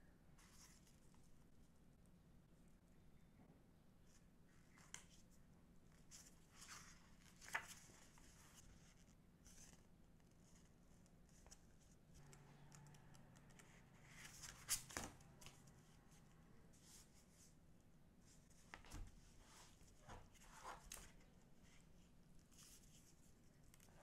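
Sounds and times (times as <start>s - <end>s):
rustling and sliding of cards: 0.4s - 1.3s, 4.6s - 12.5s, 13.4s - 17.6s, 18.2s - 24.0s.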